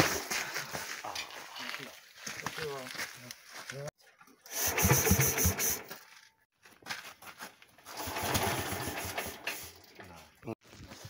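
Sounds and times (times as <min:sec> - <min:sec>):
tractor engine rope-started: 0:04.5 - 0:06.0, 0:07.8 - 0:09.9.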